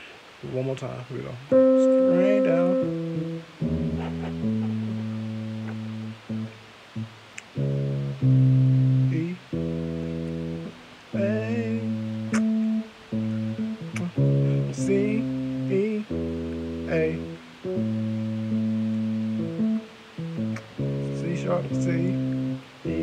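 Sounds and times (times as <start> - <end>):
synthesizer bass notes: 2.2 - 6.5.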